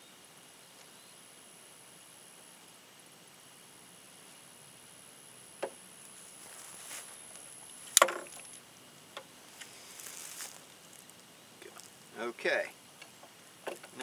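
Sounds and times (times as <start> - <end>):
soft scraping rustle: 6.0 - 8.6, 9.4 - 12.2
tools knocking on wooden rail: 13.6 - 14.0.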